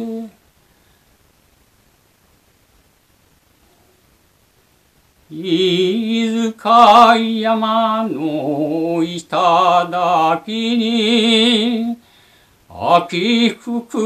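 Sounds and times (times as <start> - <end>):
short breaths: 0.6 - 1.2, 12.0 - 12.7.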